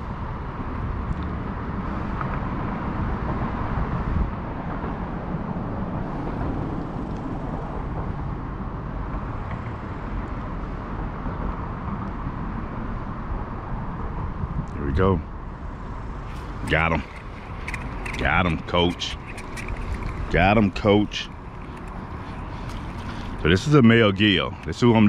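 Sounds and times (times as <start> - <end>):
outdoor background noise: 0.0 - 25.0.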